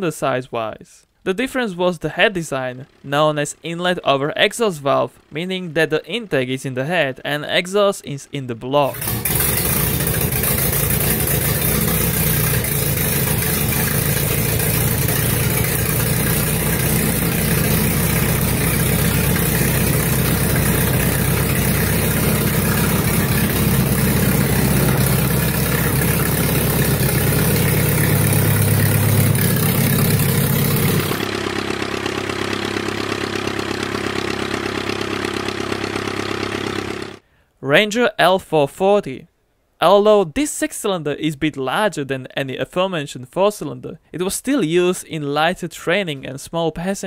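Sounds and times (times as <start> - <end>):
small aircraft engine idling: 2.1 - 6.4, 8.9 - 37.2
aero engine running: 8.9 - 37.2.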